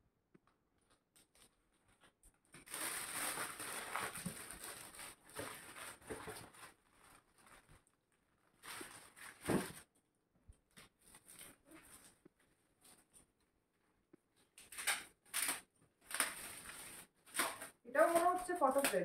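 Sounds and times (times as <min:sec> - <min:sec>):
foil wrapping paper rustling: 0:01.2 - 0:09.9, 0:14.6 - 0:19.0.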